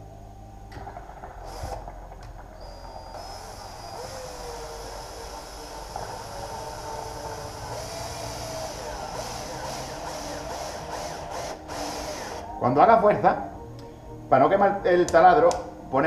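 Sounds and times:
electric drill whining under load: 0:01.4 - 0:12.6.

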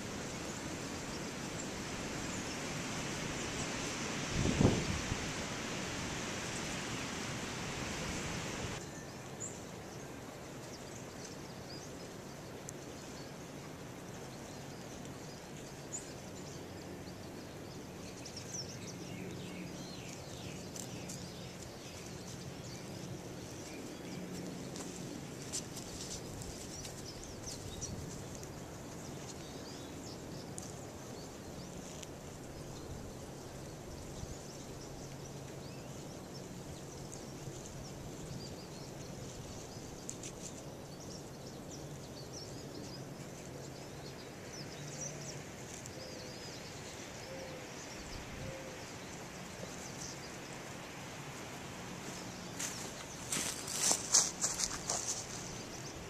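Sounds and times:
faint clicks and rustles: 0:19.2 - 0:32.8, 0:49.4 - 0:55.9.

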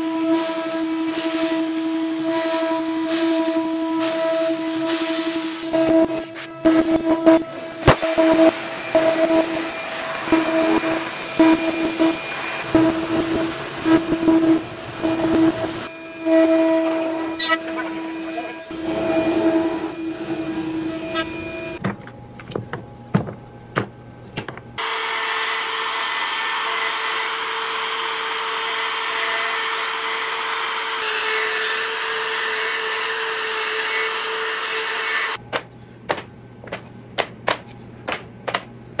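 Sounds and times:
router motor whining: 0:24.8 - 0:35.4.

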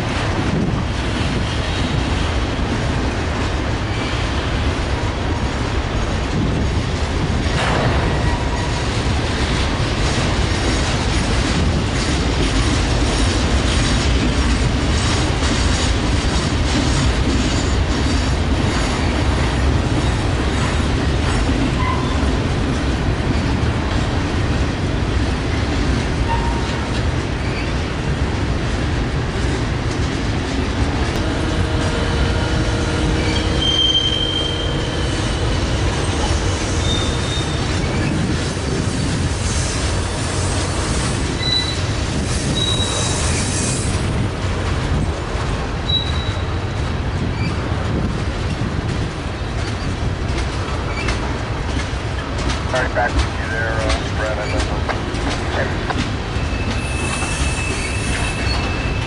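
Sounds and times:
train wheels clacking over rails: 0:00.0 - 0:59.0
faint wheel squeals: 0:56.4 - 0:59.0.

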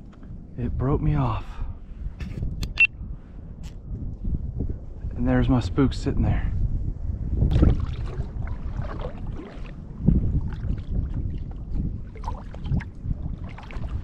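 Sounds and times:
wind rumbling on microphone: 0:00.0 - 0:14.0
water lapping against kayak hull: 0:07.4 - 0:14.0.

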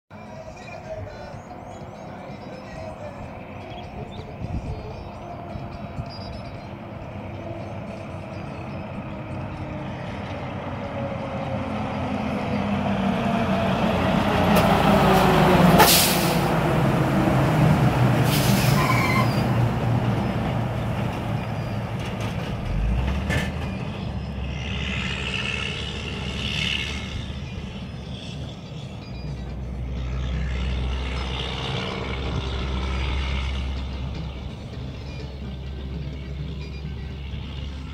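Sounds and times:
truck diesel engine passing: 0:00.1 - 0:37.9
air brake hisses: 0:15.8 - 0:16.5, 0:18.2 - 0:19.4.

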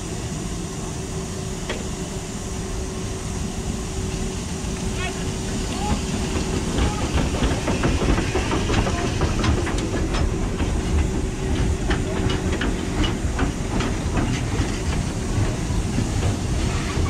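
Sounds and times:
steam locomotive hissing: 0:00.0 - 0:17.0
train carriages rumbling: 0:01.6 - 0:17.0
wheels clicking over rail joints: 0:05.5 - 0:17.0.

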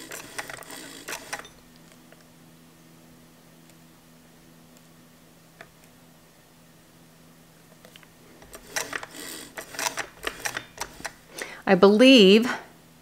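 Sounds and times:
sewing machine mechanism clicks: 0:00.0 - 0:02.0, 0:07.8 - 0:11.2
faint room hum: 0:00.0 - 0:13.0.

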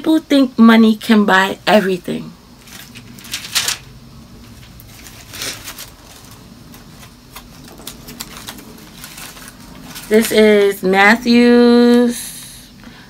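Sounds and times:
book pages rustling: 0:02.6 - 0:03.8, 0:04.5 - 0:10.5.

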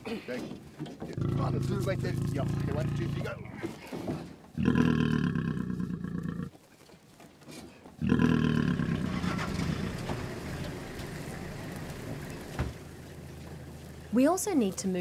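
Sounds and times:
lion growling: 0:01.0 - 0:03.9, 0:04.5 - 0:06.5, 0:08.0 - 0:11.1.

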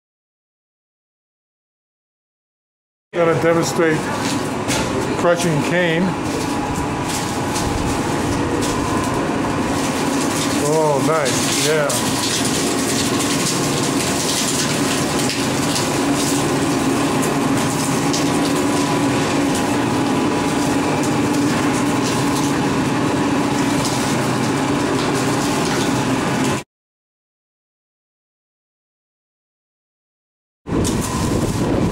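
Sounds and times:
mill motor droning: 0:03.2 - 0:26.6
stalks crackling while crushed: 0:06.1 - 0:26.6.

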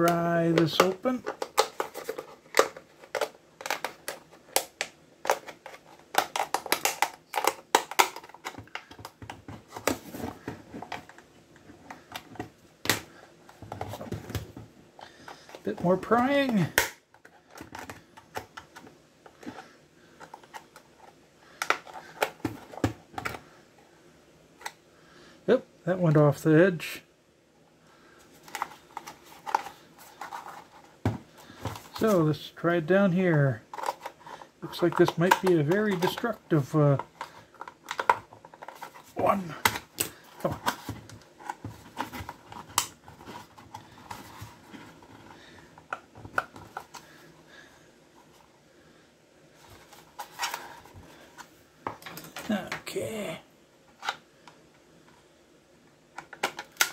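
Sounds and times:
sharp plastic snaps: 0:00.1 - 0:09.4
handling rustle: 0:28.2 - 0:32.3, 0:33.6 - 0:47.4.

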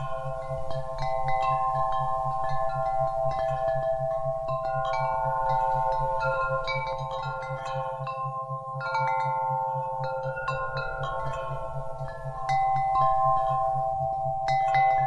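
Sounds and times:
wind chimes ringing: 0:00.0 - 0:15.0.

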